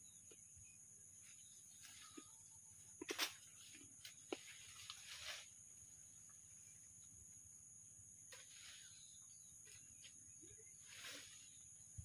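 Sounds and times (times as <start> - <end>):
leaves and branches rustling: 1.2 - 6.9, 8.2 - 12.0.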